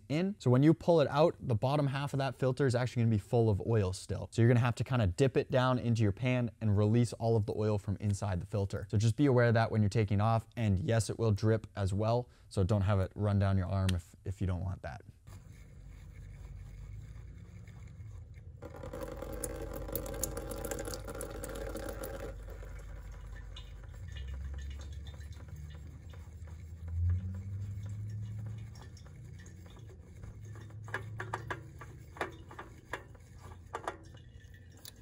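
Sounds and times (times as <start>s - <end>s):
oil dripping into drain pan: 16.3s - 35.0s.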